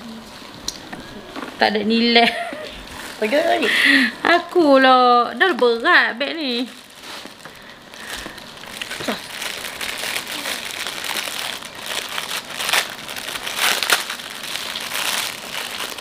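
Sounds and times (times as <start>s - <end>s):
packaging crinkling: 4.3s - 16.0s.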